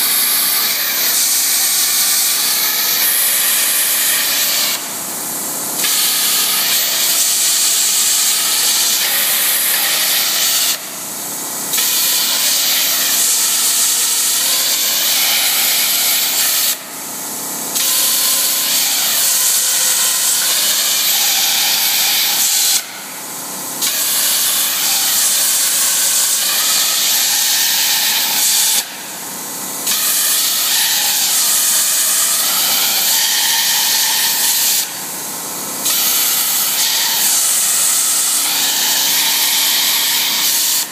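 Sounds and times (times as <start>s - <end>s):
plasma cutter arc hissing: 0.0s - 40.9s.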